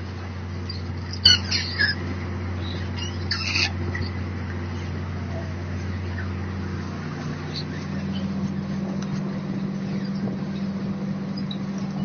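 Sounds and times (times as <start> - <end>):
low mechanical hum of machinery: 0.0 - 12.0
short sharp squeaks: 11.3 - 12.0.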